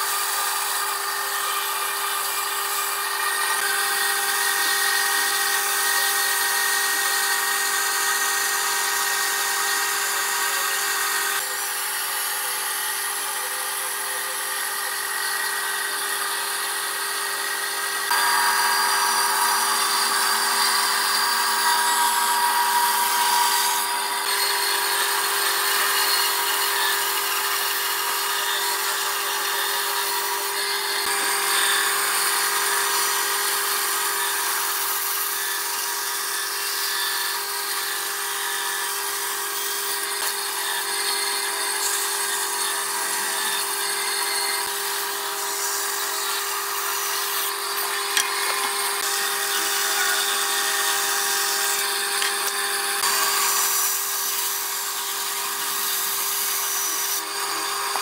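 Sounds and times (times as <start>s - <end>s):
band saw motor hum: 0.0s - 58.0s
saw blade hissing through wood: 44.5s - 58.0s.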